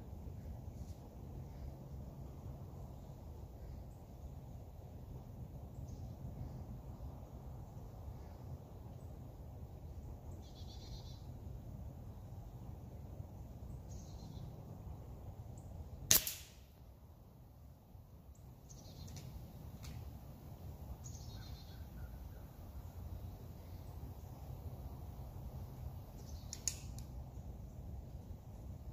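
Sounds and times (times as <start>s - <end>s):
faint bird chirps: 9.8s - 11.5s, 13.5s - 14.8s, 18.4s - 19.4s, 20.9s - 24.5s, 26.1s - 26.7s
air rifle shot crack: 16.1s - 16.8s.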